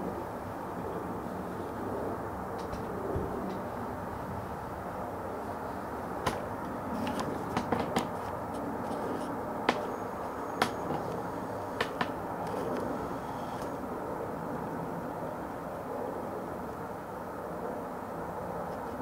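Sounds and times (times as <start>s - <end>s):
sharp clicks and taps: 11.8s - 12.9s.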